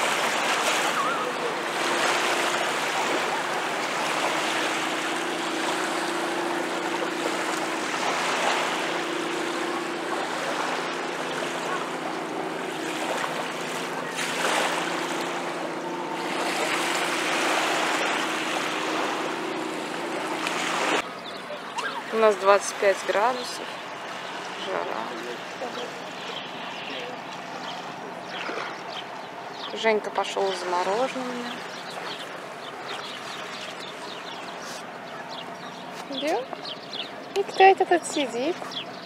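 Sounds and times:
waves lapping on shore: 0.0 - 39.0.

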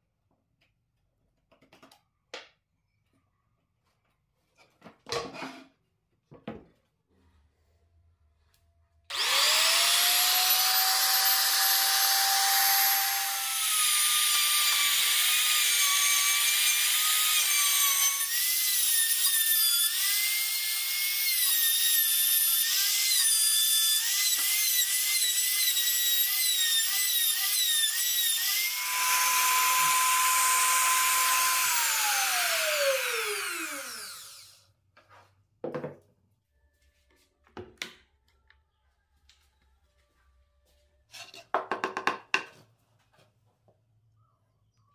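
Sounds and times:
router spinning down: 9.1 - 18.4, 22.6 - 34.6
router whining while cutting wood: 9.1 - 34.6.

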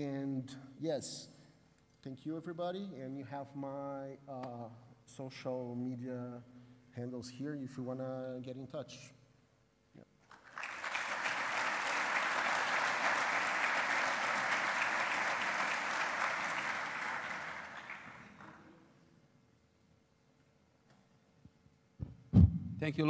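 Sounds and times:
audience applauding: 10.2 - 18.7.

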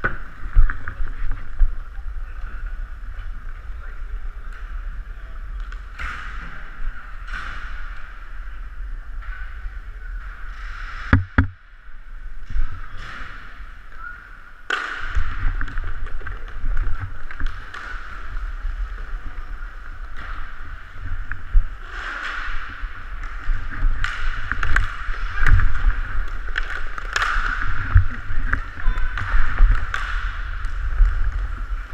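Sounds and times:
sharp knocks: 11.1 - 11.6.

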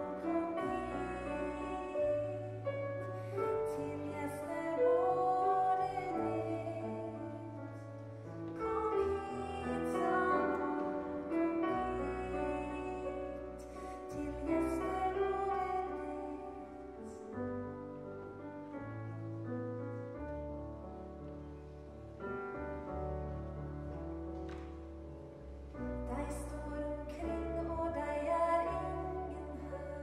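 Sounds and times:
piano chords: 0.0 - 30.0.

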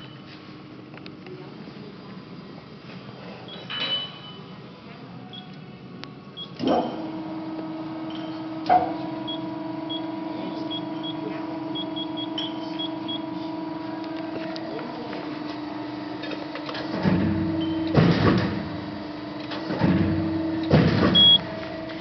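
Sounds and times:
machine clunk: 6.6 - 7.1, 16.2 - 18.8, 19.4 - 22.0
machine hum: 6.6 - 22.0
short electronic beeps: 21.2 - 21.4.

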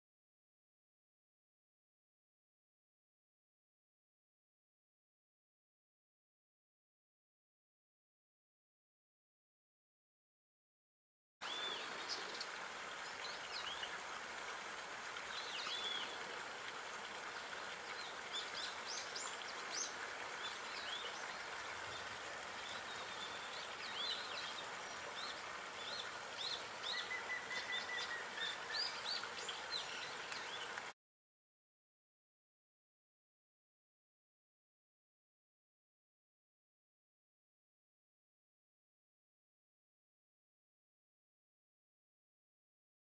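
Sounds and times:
outdoor background hiss: 11.4 - 31.0
small birds chirping: 17.4 - 30.9.

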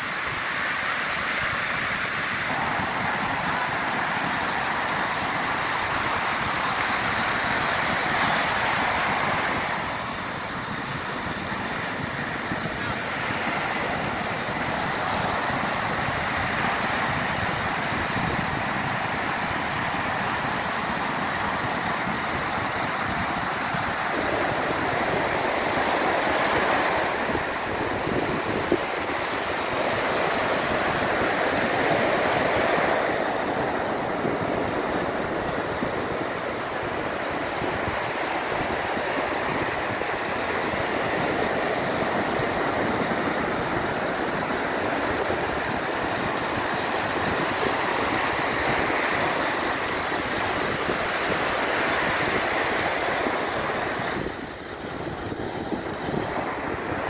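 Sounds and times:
ocean surf breaking on beach: 0.0 - 57.0.

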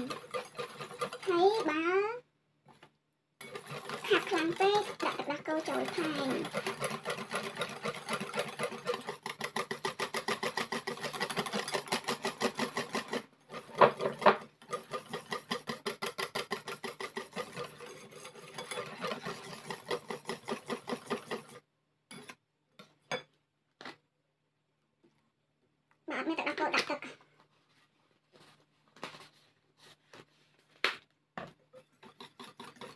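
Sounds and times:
whisk beating batter in bowl: 0.0 - 2.0, 3.4 - 21.6, 31.7 - 32.9.

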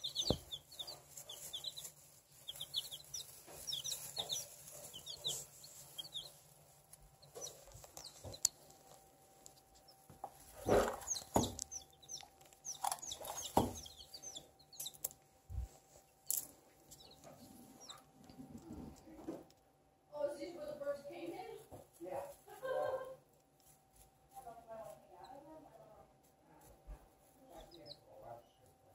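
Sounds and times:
baby chicks peeping: 0.0 - 19.6, 26.6 - 28.9.

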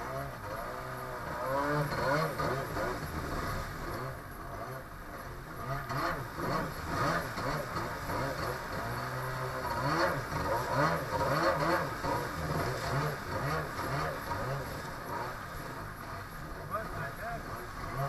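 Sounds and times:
jet ski engine revving: 0.0 - 18.0
water splashing under hull: 6.0 - 18.0.

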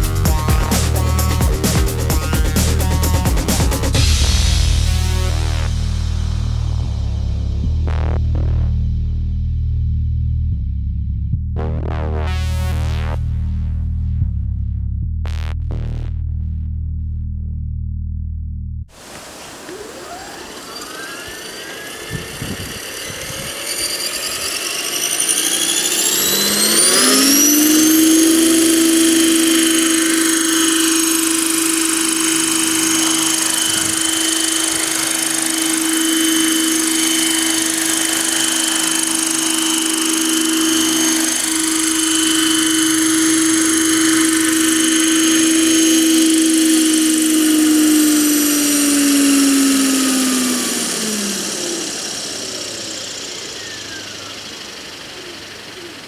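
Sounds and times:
rc helicopter motor whine: 0.0 - 6.7, 19.0 - 56.0
rotor hum: 0.0 - 56.0.

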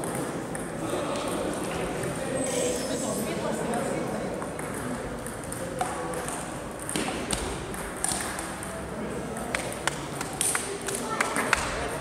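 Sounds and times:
table tennis ball knocks: 4.4 - 8.6.

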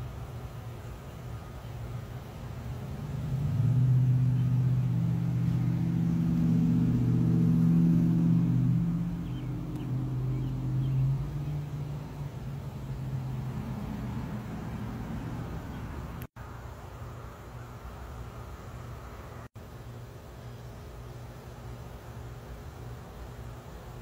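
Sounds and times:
vehicle engine running: 2.5 - 16.3.

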